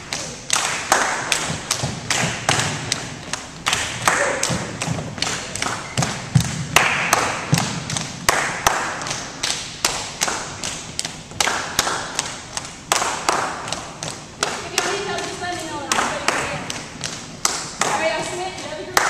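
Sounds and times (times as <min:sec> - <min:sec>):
bamboo poles knocking rhythmically: 0:00.0 - 0:19.0.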